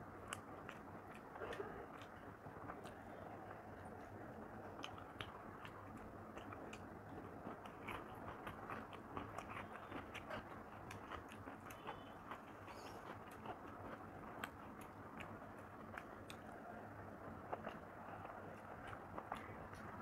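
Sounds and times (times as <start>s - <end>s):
close chewing: 0.2s - 20.0s.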